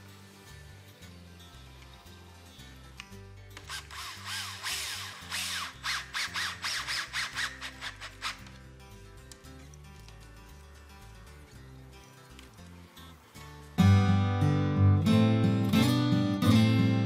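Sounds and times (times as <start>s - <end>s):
background music: 0.0s - 17.0s
cordless drill driving a screw: 3.6s - 8.5s.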